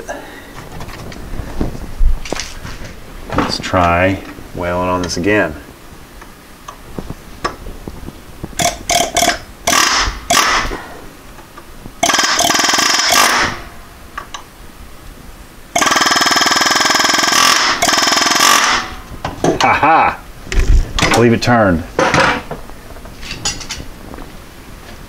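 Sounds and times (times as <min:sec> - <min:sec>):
air chisel hammering: 0:08.6 - 0:10.8.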